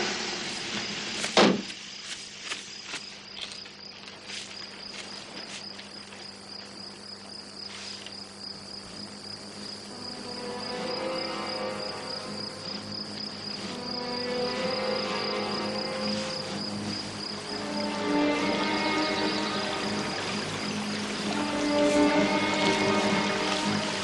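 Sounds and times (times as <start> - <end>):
crickets chirring: 0.3 - 24.0
loud thump: 1.4 - 1.7
quiet music: 8.8 - 24.0.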